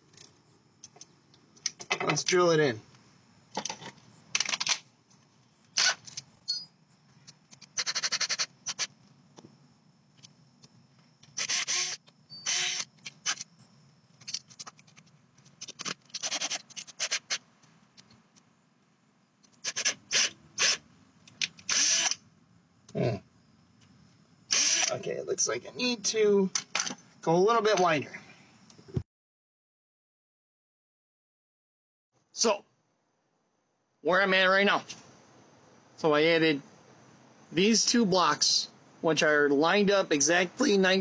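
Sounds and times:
cordless drill driving screws: 0:05.8 - 0:06.0, 0:11.4 - 0:13.5, 0:16.2 - 0:17.4, 0:19.6 - 0:20.8, 0:21.6 - 0:22.2, 0:24.5 - 0:24.9.

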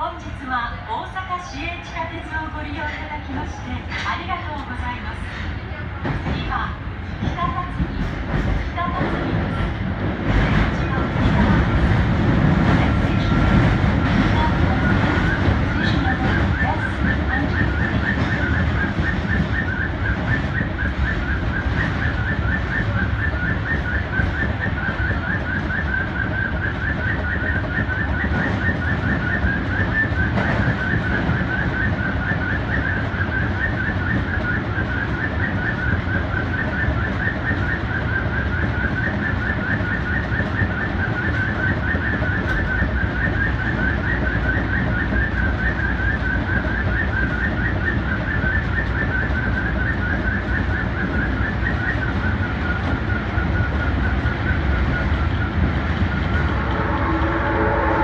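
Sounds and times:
subway train rumbling in tunnel: 0:00.0 - 0:58.0.

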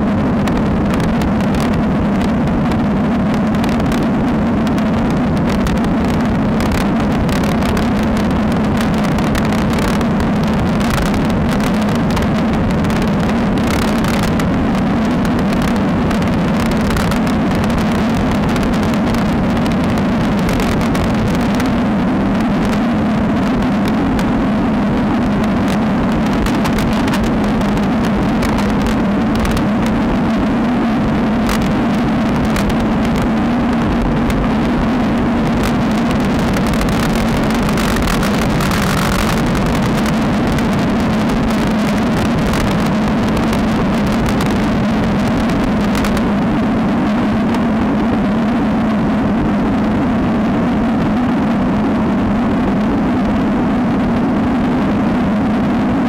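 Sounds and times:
wind rush on microphone: 0:00.0 - 0:56.0
tyre noise on asphalt: 0:25.1 - 0:46.4.

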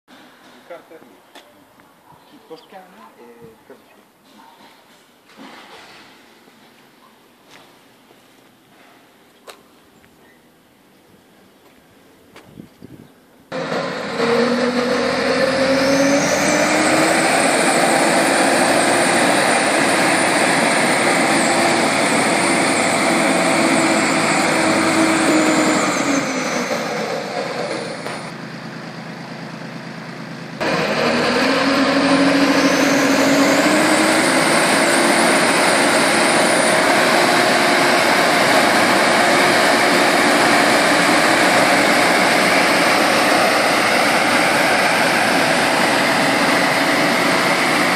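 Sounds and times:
air blower whine: 0:13.5 - 0:47.9
tractor engine: 0:13.5 - 0:47.9.

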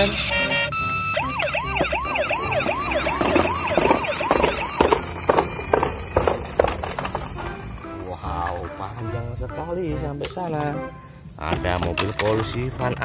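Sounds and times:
toy electronic siren wailing: 0:00.0 - 0:07.2.

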